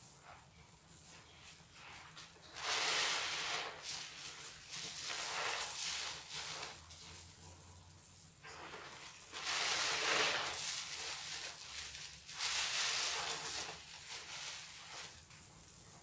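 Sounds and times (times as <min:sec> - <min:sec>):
sponges squelching in suds: 0:01.7 - 0:07.5, 0:08.4 - 0:15.2.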